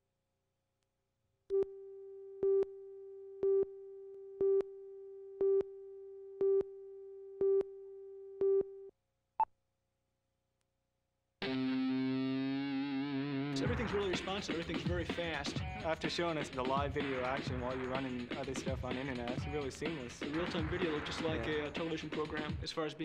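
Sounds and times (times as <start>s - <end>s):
music: 11.4s - 23.0s.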